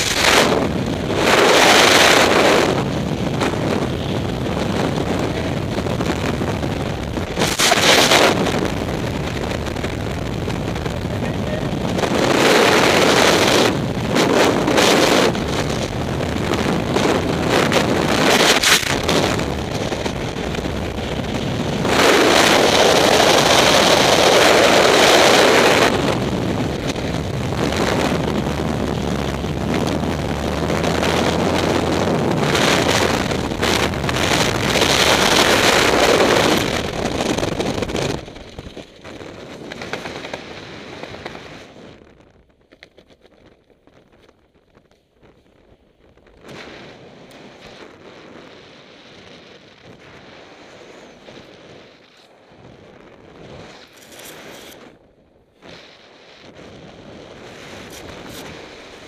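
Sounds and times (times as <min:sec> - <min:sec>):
freefall wind rushing: 0:00.0 - 0:42.0.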